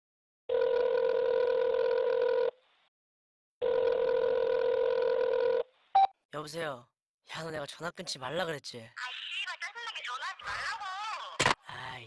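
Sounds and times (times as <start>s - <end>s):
telephone ringback tone: 0.5s - 2.5s, 3.6s - 6.1s.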